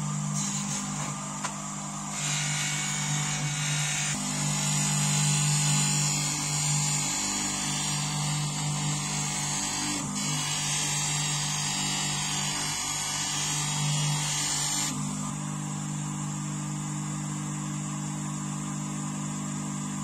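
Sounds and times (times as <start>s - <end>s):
bench grinder motor humming: 0.0s - 15.6s
blade hissing on polishing wheel: 0.3s - 1.5s, 2.1s - 15.0s.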